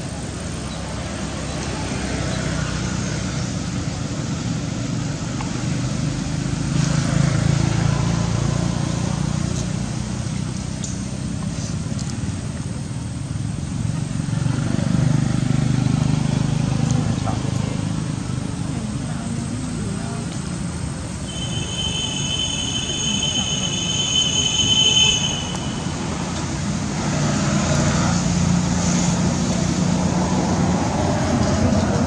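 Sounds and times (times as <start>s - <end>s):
low engine rumble: 0.0s - 32.0s.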